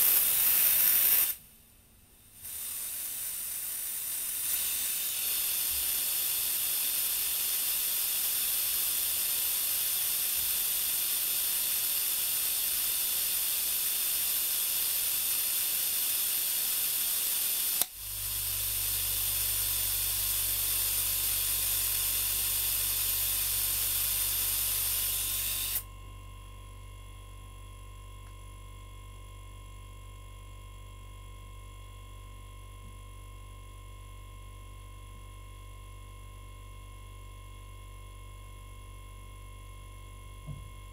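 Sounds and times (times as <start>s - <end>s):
compressed air hissing: 0.0s - 1.4s, 2.4s - 25.8s
compressor humming: 2.5s - 30.8s, 37.7s - 40.9s.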